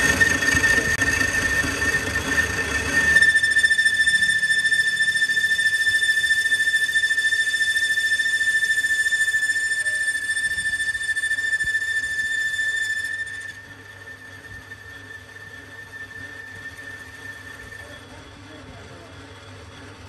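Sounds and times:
machine rumble: 0.0 - 7.2
lathe tool squealing: 0.0 - 20.0.

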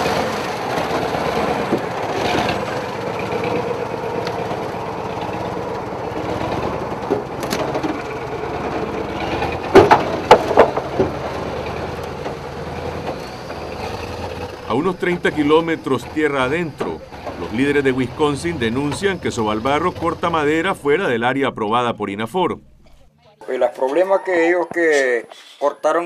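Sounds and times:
truck engine running: 0.0 - 23.2
wooden planks creaking and cracking: 6.1 - 14.9.

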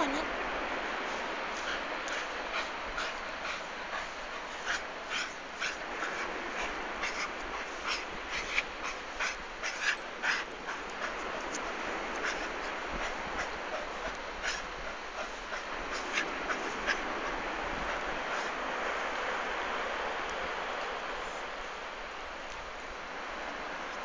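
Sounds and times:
dog digging in sand: 0.7 - 19.4
dog snuffling: 1.0 - 19.0.

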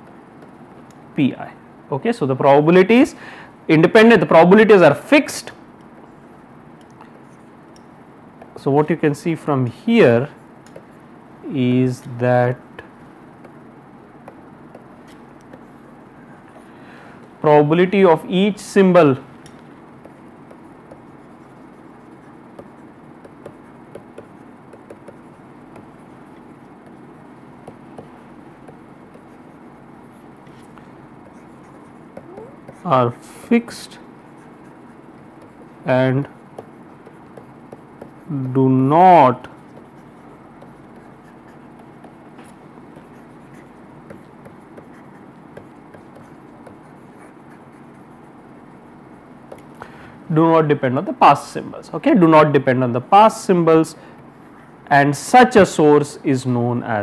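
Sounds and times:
low room hum: 0.0 - 57.0
stylus ticking on pen tablet: 22.6 - 25.9.

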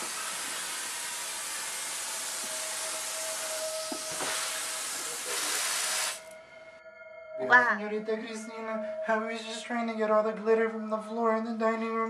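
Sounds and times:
vacuum cleaner running: 0.0 - 6.3.

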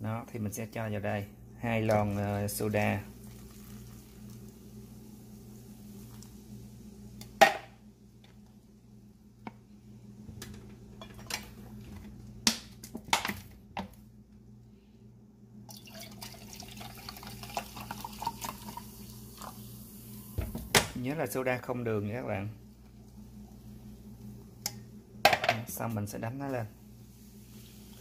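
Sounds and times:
carbonation fizzing in batter: 2.0 - 6.6, 15.7 - 20.2
soda water pouring: 2.1 - 6.5, 15.7 - 20.3.

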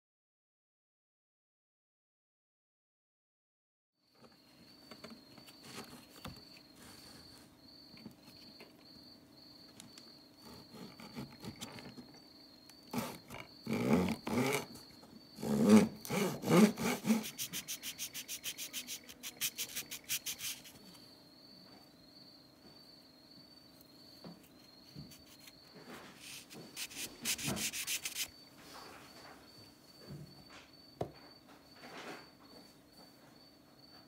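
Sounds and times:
hacksaw cutting wood: 12.9 - 14.7, 15.4 - 19.6
metal file rubbing wood: 12.9 - 14.7, 15.4 - 20.8, 26.2 - 28.3.

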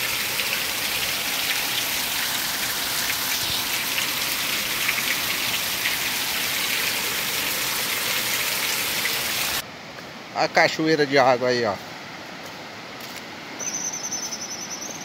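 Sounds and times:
heavy rain on pavement: 0.0 - 9.6.

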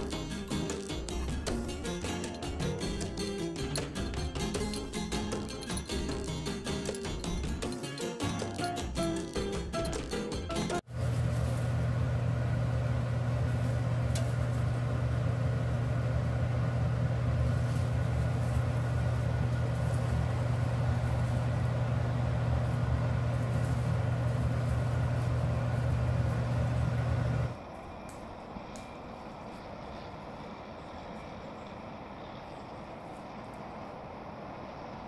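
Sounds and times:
range hood fan humming: 10.8 - 35.0.

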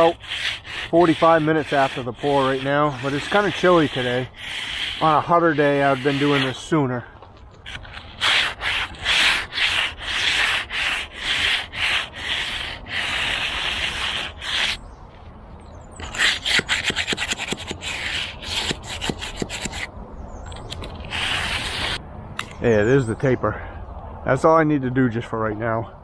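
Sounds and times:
float scraping wet concrete: 0.0 - 14.8, 16.0 - 19.9, 20.6 - 22.0.

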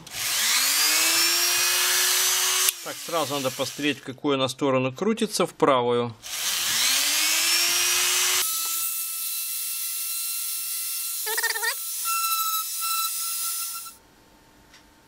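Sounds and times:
mini drill high whine: 0.0 - 4.0, 6.2 - 14.0.

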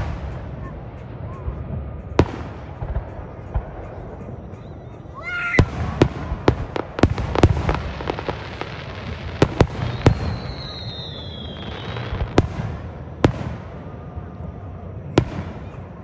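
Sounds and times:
firework bangs: 0.0 - 4.9, 5.6 - 16.0
firework whistle: 2.3 - 13.8.

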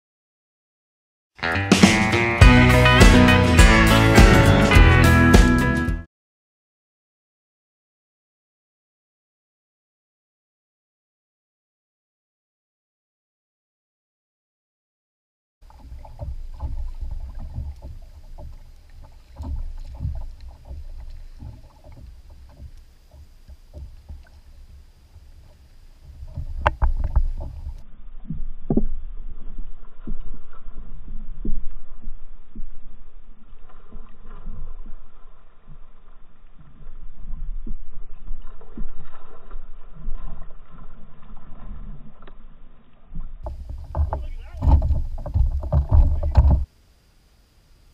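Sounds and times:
water lapping against hull: 15.6 - 47.9
knocks on hull: 15.8 - 24.3, 43.4 - 46.7
wind on microphone: 43.4 - 46.7.

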